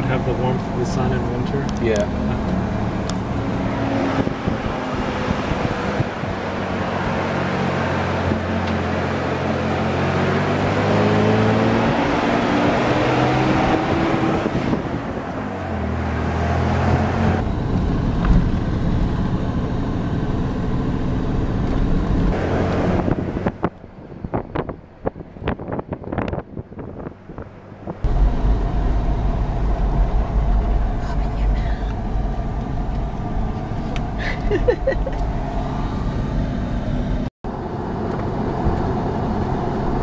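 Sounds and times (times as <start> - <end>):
wind buffeting microphone: 2.8 - 7.2, 13.4 - 19.8, 21.3 - 34.2
truck engine running: 27.1 - 40.0.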